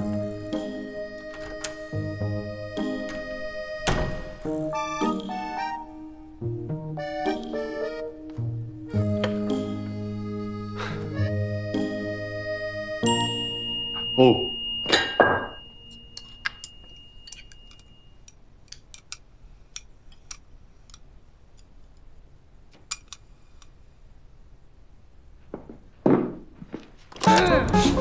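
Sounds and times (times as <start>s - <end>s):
music: 0.0s - 16.8s, 27.2s - 28.0s
utensils clinking on pot and bowl: 13.9s - 19.1s.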